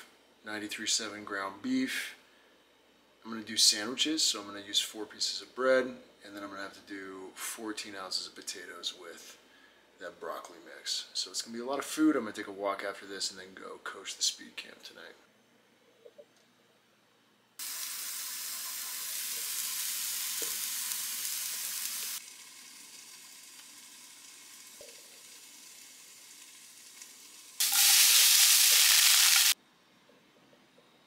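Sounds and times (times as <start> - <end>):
food sizzling in a frying pan: 17.6 - 29.6.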